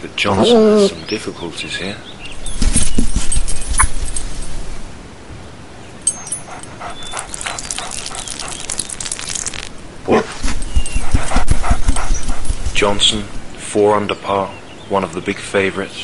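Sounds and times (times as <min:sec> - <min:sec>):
dog whimpering: 0:00.3 - 0:01.0, 0:06.2 - 0:09.4, 0:10.1 - 0:13.5.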